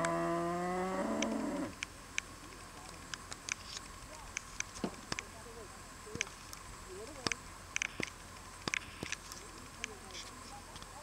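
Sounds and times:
faint sharp clicks: 0:06.1 - 0:10.9.

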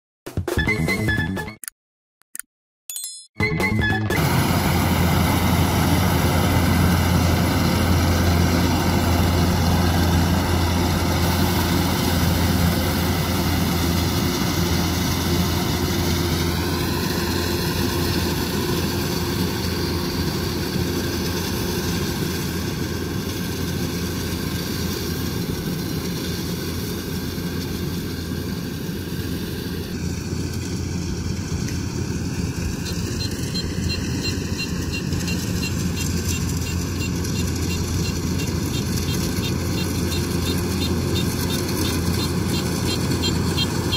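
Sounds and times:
combine harvester engine drone: 0:03.5 - 0:43.9.

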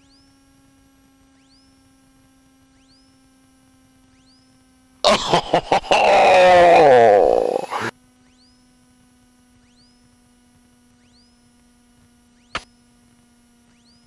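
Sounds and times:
light aircraft cockpit noise: 0:00.0 - 0:05.0, 0:08.0 - 0:14.0.

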